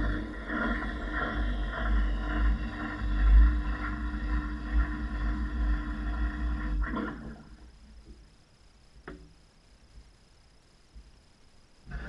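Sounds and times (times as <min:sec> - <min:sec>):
washing machine running: 0:00.0 - 0:08.1.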